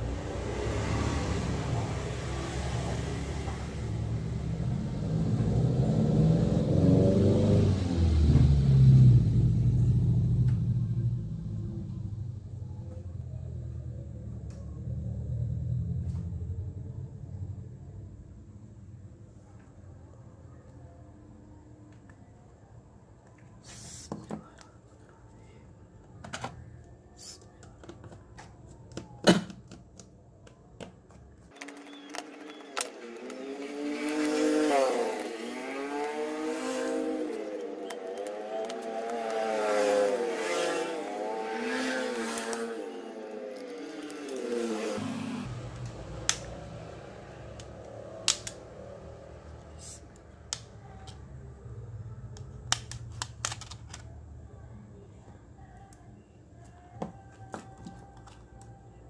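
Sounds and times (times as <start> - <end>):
plastic clicks and snaps: 45.8 - 46.5, 47.6 - 48.6, 52.3 - 54.1.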